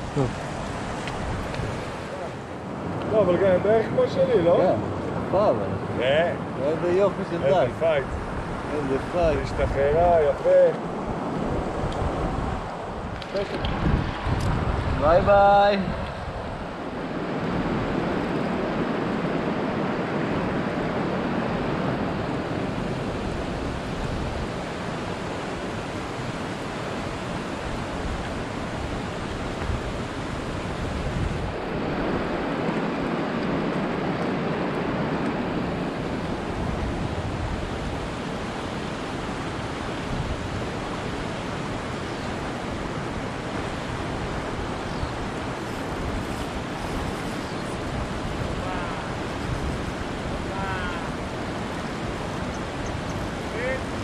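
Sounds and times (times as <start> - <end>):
wind rumbling on microphone: 0.0 - 54.0
river rapids rushing over rocks: 18.6 - 54.0.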